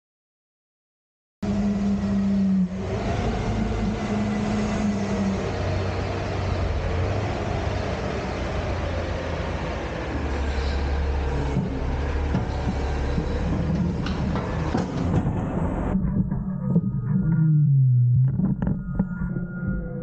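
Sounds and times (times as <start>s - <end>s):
garbage truck engine humming: 1.4s - 15.9s
steady higher tone: 15.9s - 20.0s.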